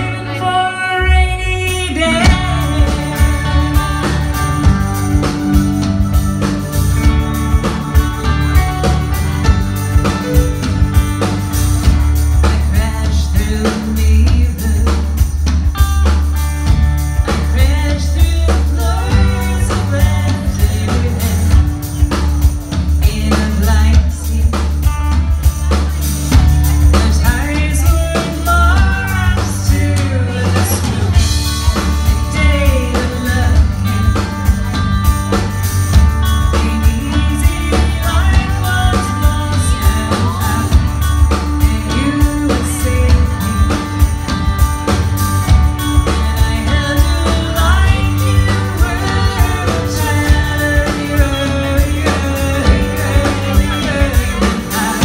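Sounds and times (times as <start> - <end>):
woman singing: 0.0 - 5.7, 12.2 - 15.4, 17.2 - 22.3, 22.9 - 25.2, 26.6 - 34.8, 36.2 - 44.1, 46.0 - 55.0
heavy bass line: 0.0 - 55.0
live band playing: 0.0 - 55.0.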